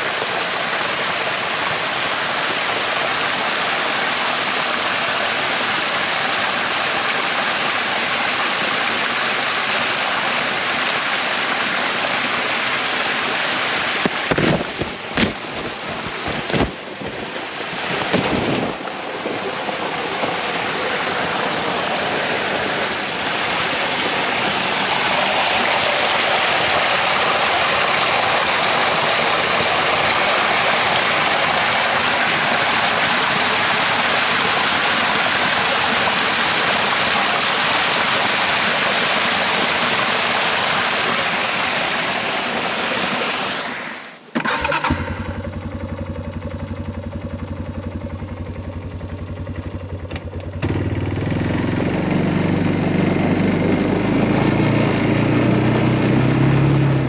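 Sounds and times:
water running under ice: 0.2 - 43.9.

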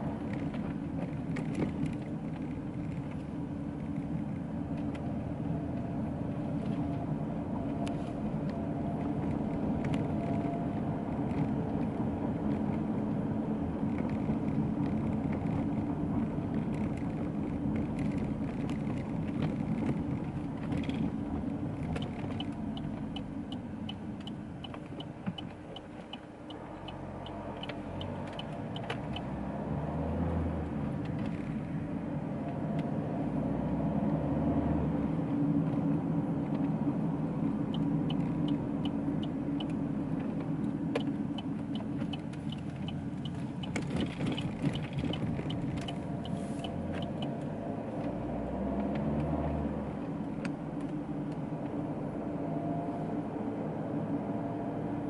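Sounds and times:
car engine and road rumble: 0.0 - 55.0
even ticks: 40.9 - 47.4.

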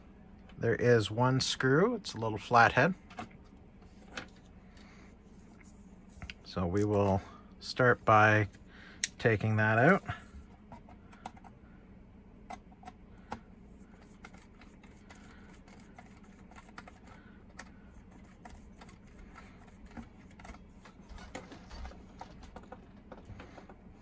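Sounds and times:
low steady hum: 0.0 - 24.0
handling plastic model: 12.5 - 24.0.

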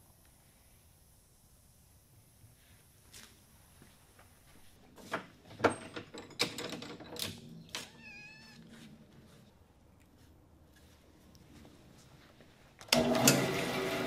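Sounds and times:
wood and tools clattering: 5.0 - 8.0.

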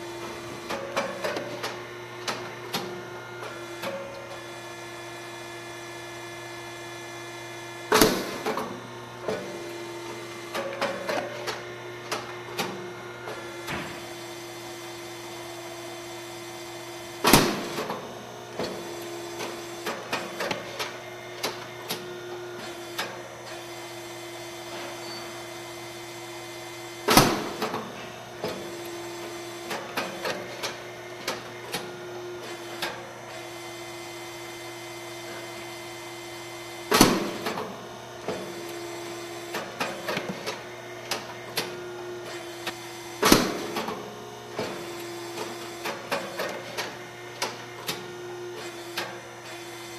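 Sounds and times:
steady machine hum: 0.0 - 49.9
loud pops of rice cake machine: 7.8 - 15.4, 17.1 - 23.2, 26.9 - 31.9, 36.6 - 49.9.

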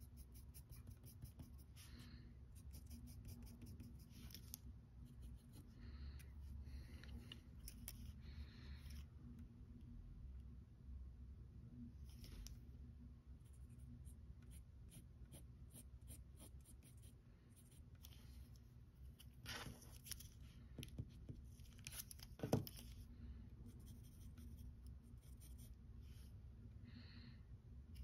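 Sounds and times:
pencil scratching on paper: 0.0 - 5.7, 13.5 - 18.2, 23.7 - 25.8.

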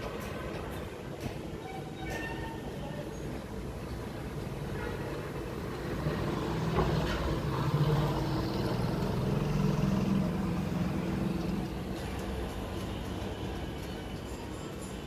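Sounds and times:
vehicle engine passing: 5.8 - 11.7.

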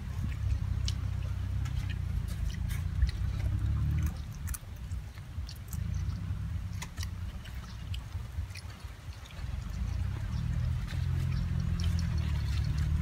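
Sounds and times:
low steady rumble: 0.0 - 13.0
puppy chewing food: 0.0 - 13.0.

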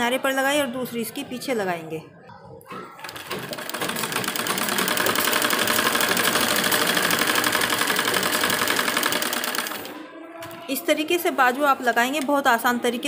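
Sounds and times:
sewing machine stitching: 3.0 - 10.0.

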